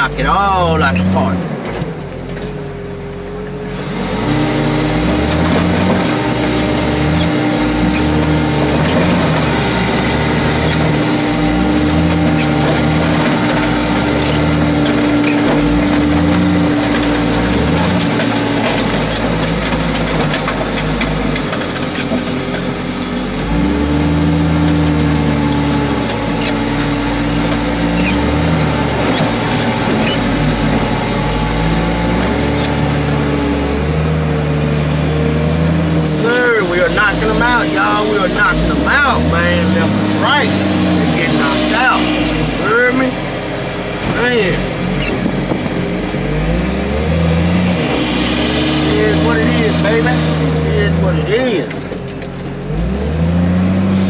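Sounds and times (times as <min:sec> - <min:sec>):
car crusher engine labouring: 0:00.0 - 0:54.0
metal crumpling cracks: 0:05.3 - 0:23.4.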